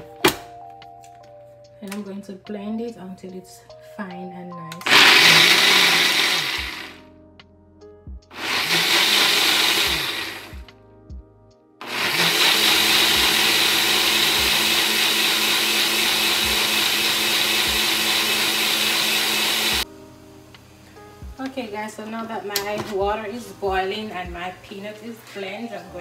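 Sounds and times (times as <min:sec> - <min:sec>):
blender blending nuts: 0:04.8 - 0:07.0, 0:08.3 - 0:10.6, 0:11.8 - 0:19.8.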